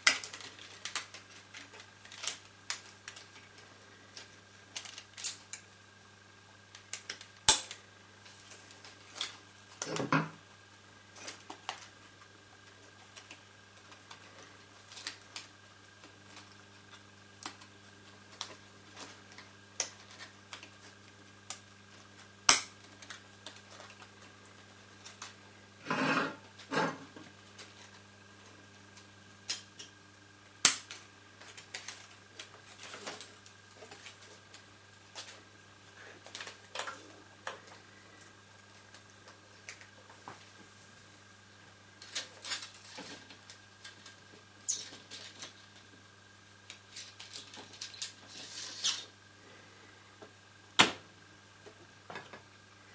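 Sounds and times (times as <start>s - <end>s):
film and metal parts clicking: 0.0s - 5.7s, 6.7s - 7.8s, 46.7s - 49.1s
steady low hum: 0.0s - 52.9s
scraping noises: 25.8s - 27.2s.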